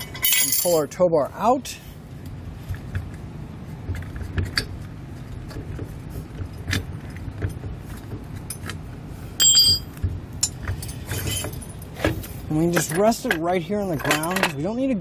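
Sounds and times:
jangling hardware rattle: 0.0s - 0.8s, 9.4s - 14.7s
metallic clinks and knocks: 0.0s - 0.8s, 9.4s - 14.7s
loud ringing metal clank: 9.4s - 11.7s.

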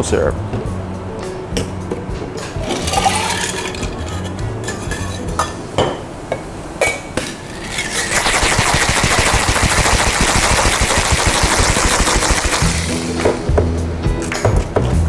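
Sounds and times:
metal shaker tins clinking: 2.6s - 5.6s, 6.8s - 9.8s
ice rattling in a shaker: 2.7s - 4.0s, 7.5s - 13.1s.

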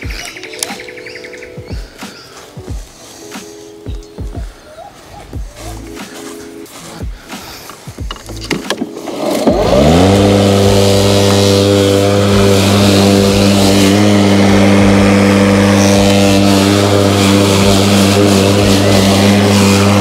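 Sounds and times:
electric mower motor whining: 8.1s - 20.0s.

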